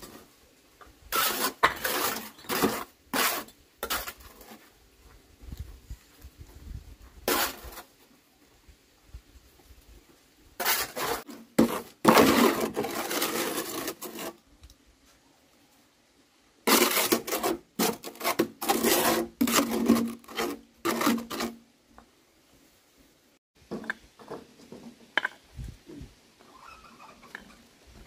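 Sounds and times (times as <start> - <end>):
rough scraping strokes: 1.1 - 4.7, 7.2 - 7.9, 10.6 - 14.4, 16.7 - 21.6.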